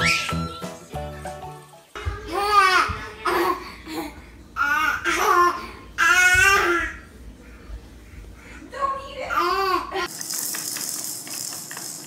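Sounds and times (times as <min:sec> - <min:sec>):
baby squealing: 0:00.0 - 0:00.4
rattling shaking sound: 0:10.1 - 0:12.0.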